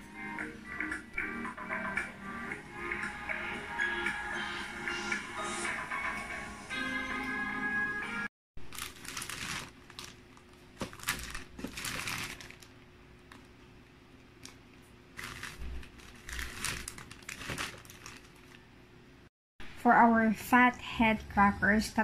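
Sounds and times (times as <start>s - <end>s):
music: 0.0s - 8.3s
plastic bag crinkling: 8.6s - 13.6s, 14.4s - 18.7s.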